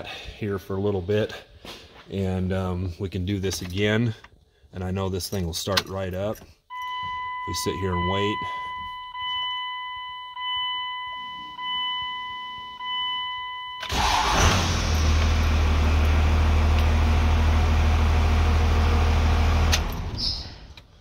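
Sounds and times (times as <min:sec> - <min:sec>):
dashboard warning chime: 0:06.7 - 0:14.2
diesel engine cranking and idling: 0:13.8 - 0:21.0.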